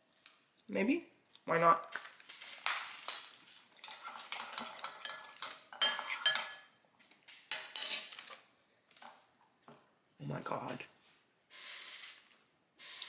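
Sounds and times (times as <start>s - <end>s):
utensil clinking ceramic bowl: 3.8s - 6.7s.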